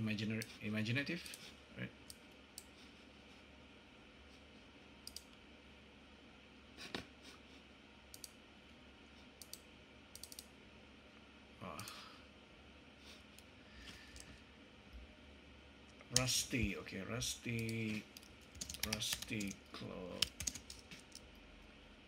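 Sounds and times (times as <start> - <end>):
steady low hum: 0.0 - 22.0
computer mouse clicks: 5.0 - 5.4, 8.1 - 8.4, 9.4 - 10.5.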